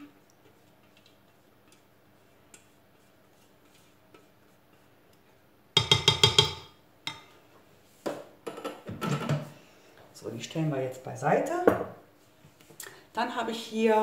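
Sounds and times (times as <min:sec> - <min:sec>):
utensil knocking on mixing bowl: 0:05.8 - 0:06.8.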